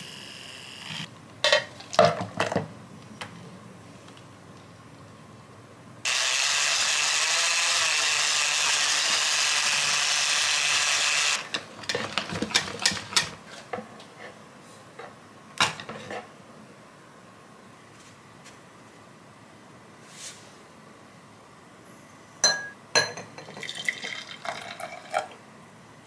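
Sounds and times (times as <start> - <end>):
electric hand mixer whirring: 6.1 - 11.5.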